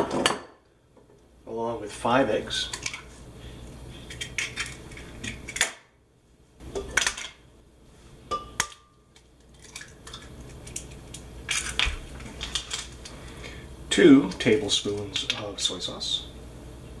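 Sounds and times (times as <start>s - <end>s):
eggs cracking against jar rim: 8.6s - 13.2s.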